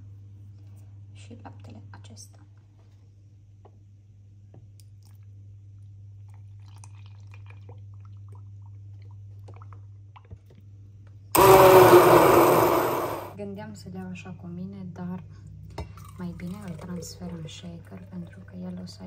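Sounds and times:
stick blender running: 11.4 - 13.4.

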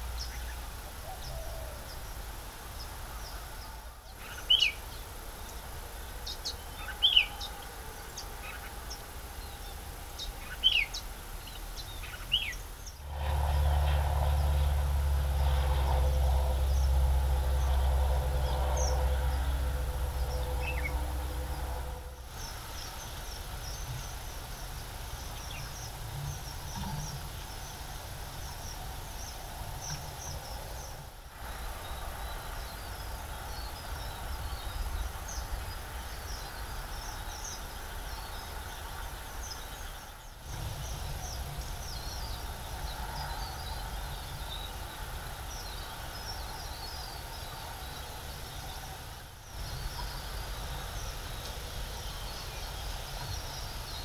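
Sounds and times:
steady low rumble: 12.6 - 37.2.

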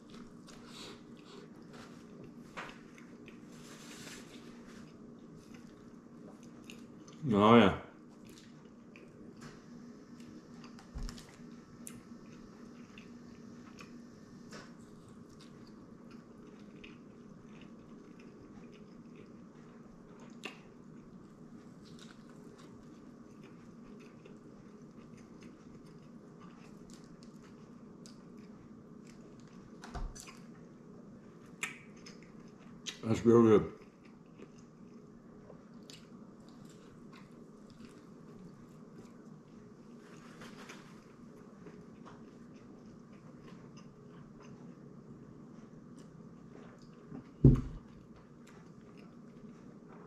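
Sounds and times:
person chewing food: 0.0 - 7.2, 8.1 - 33.0, 33.8 - 50.0
steady low hum: 0.0 - 50.0
soft thump: 47.4 - 47.8.

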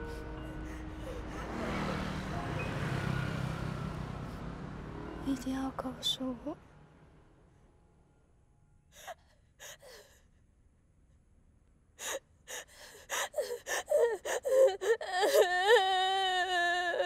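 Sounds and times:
girl crying and sobbing: 12.0 - 17.0
girl wailing cry: 13.4 - 17.0.

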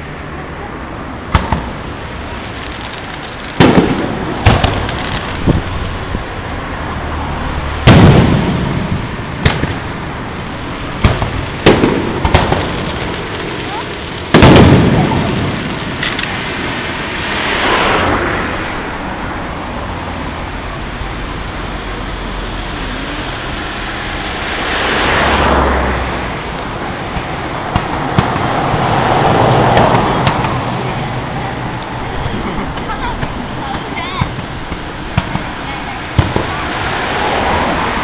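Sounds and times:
cars passing: 0.0 - 38.0
faint firework pops: 1.3 - 1.8, 2.5 - 5.6, 7.8 - 9.9, 11.0 - 16.4, 36.2 - 36.6
firework boom: 2.5 - 6.2, 7.8 - 10.2, 10.9 - 13.4, 14.2 - 18.7.

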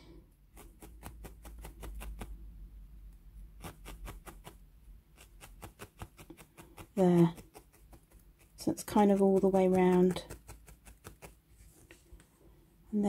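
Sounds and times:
felting needle stabbing into wool: 0.4 - 2.4, 3.5 - 11.5.

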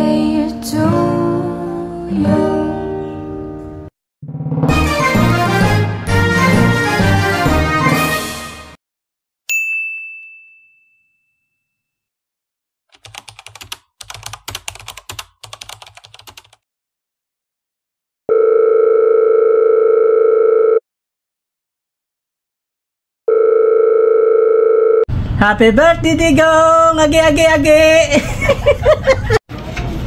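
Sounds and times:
bright ding: 9.5 - 11.8
keyboard typing clicks: 13.0 - 16.6.

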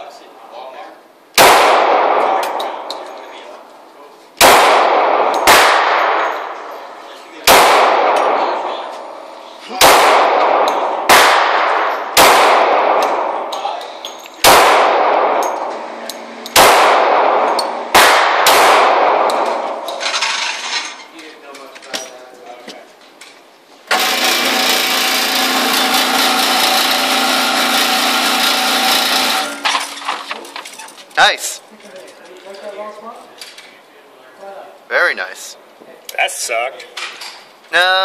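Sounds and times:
pistol shots ringing: 1.4 - 3.0, 4.4 - 8.8, 9.8 - 13.6, 14.4 - 15.8, 16.4 - 20.0
target carrier motor running: 23.9 - 29.6.

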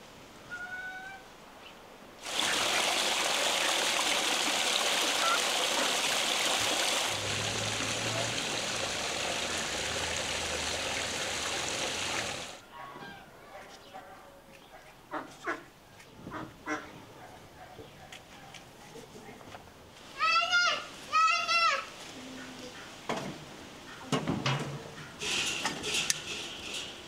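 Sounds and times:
water rushing: 2.2 - 12.6.

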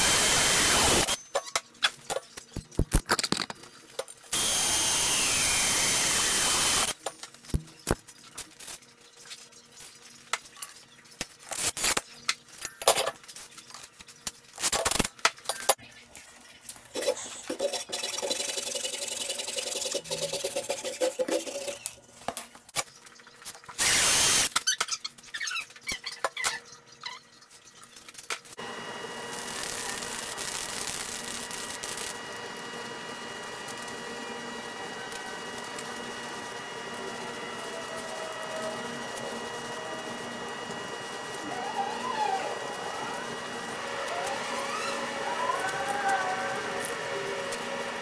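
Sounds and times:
cordless drill boring into steel: 0.0 - 1.2, 4.3 - 7.0, 23.8 - 24.5.

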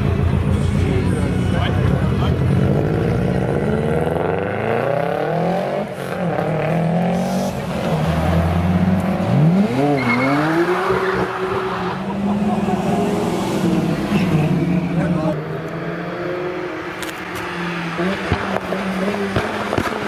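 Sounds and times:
car engine revving hard: 2.4 - 17.1.

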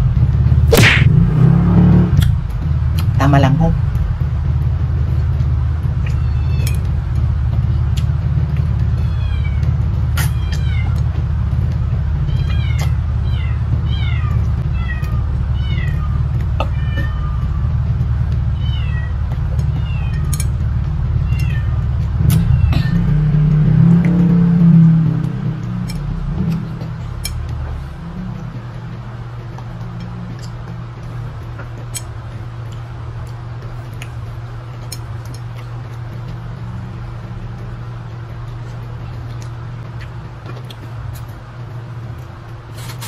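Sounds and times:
steady low hum: 0.0 - 43.0
cat meowing: 6.0 - 6.9, 8.9 - 11.0, 12.3 - 17.8, 18.4 - 23.1.

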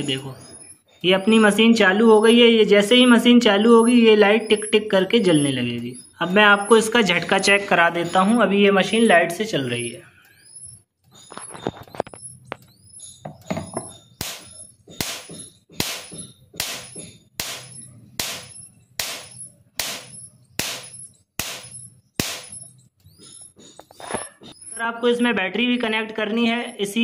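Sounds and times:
electric fence spark snapping: 14.2 - 22.8.

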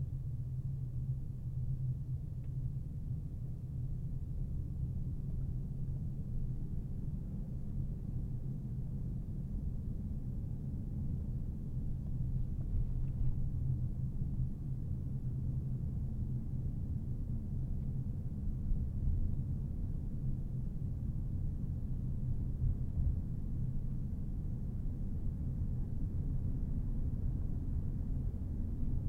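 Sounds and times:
car tyre and engine rumble: 11.9 - 14.4.

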